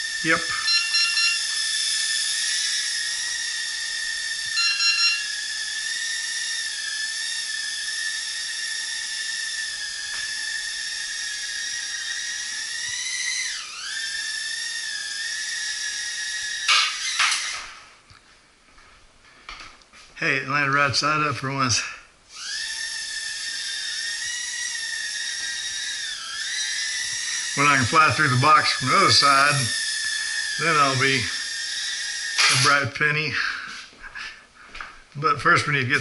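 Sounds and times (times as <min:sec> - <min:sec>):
drone motors whining: 0:00.0 - 0:18.0, 0:22.3 - 0:33.9
high beeps: 0:00.4 - 0:01.6, 0:04.5 - 0:05.3.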